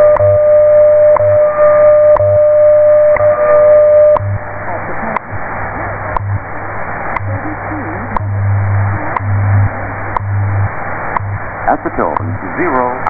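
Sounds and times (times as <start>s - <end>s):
time signal ticks: 0.0s - 4.4s, 6.1s - 6.4s, 7.2s - 8.4s, 9.1s - 9.4s, 10.1s - 10.5s, 11.1s - 12.7s
pulsing low hum: 0.0s - 13.0s
radio static hiss: 0.0s - 13.0s.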